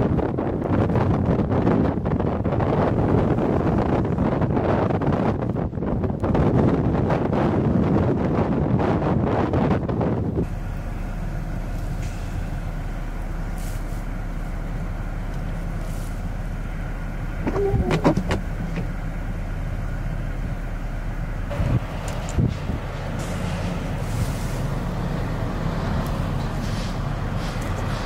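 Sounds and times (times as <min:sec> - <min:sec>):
low traffic rumble: 0:00.0 - 0:28.0
strong wind: 0:00.0 - 0:28.0
vehicle passing on snow: 0:11.2 - 0:19.7, 0:21.4 - 0:28.0
brief pitched sound: 0:17.4 - 0:18.3.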